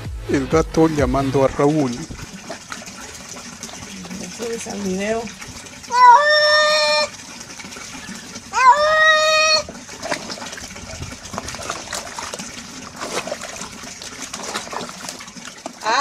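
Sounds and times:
water splashing in plastic bucket: 0.8 - 16.0
cat meowing loudly: 8.6 - 9.6.

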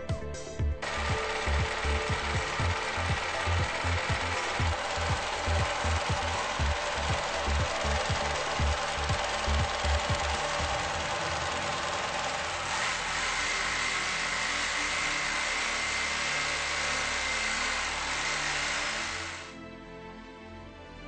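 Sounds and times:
steady high whine: 0.8 - 15.7
industrial sewing machine running: 0.8 - 19.6.

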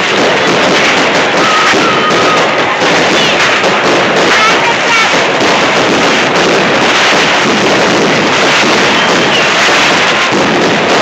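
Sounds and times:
fireworks crackling and bursting: 0.0 - 11.0.

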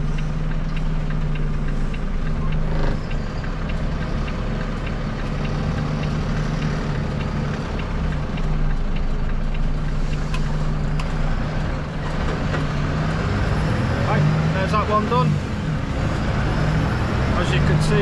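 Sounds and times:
light ticking: 0.0 - 12.8
lorry diesel engine running: 0.0 - 18.0.

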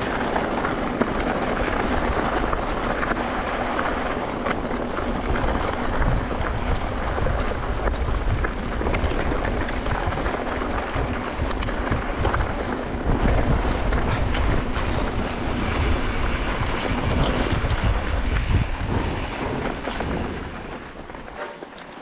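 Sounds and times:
wind buffeting microphone: 0.0 - 22.0
small clicks and rattles: 3.9 - 12.9.

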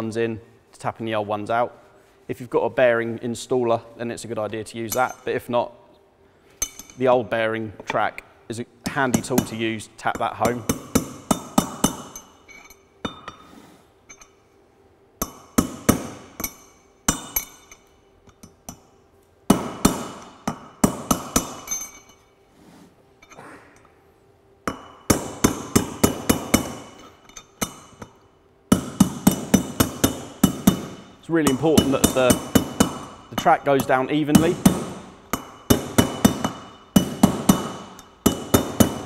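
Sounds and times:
hammer tapping on metal: 28.7 - 39.0.

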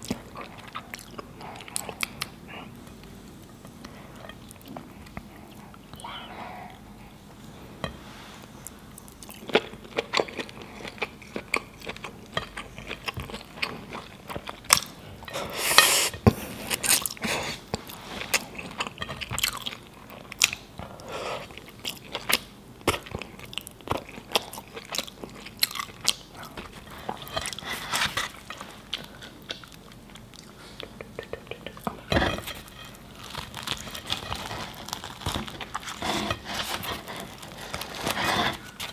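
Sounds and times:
person chewing food: 0.0 - 38.9
rustling: 32.2 - 38.9.

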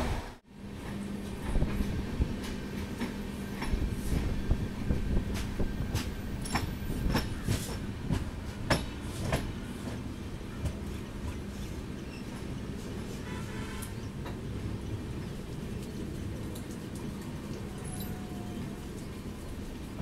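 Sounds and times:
train rumble: 0.0 - 20.0
wheels clicking over rail joints: 5.2 - 20.0.

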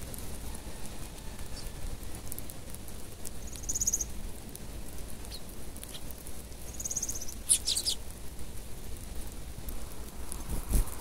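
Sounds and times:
sharp bird ticks: 3.4 - 4.1, 5.3 - 8.0
sparrow trilled calls: 3.4 - 4.1, 6.7 - 8.0.

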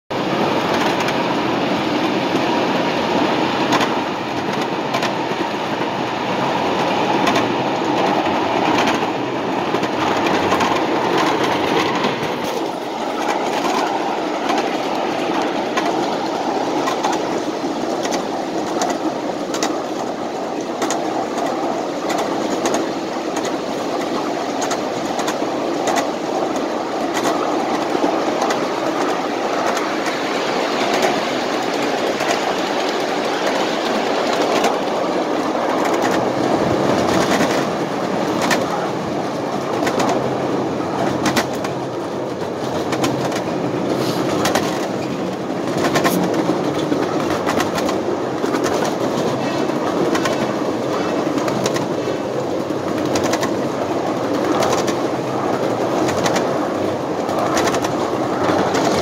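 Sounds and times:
wheels clacking over rail joints: 0.1 - 59.0.

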